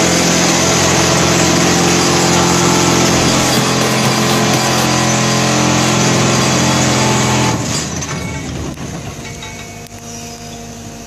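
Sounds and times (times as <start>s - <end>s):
excavator engine and hydraulics: 0.0s - 11.0s
vibratory plate loud hum: 1.2s - 5.6s.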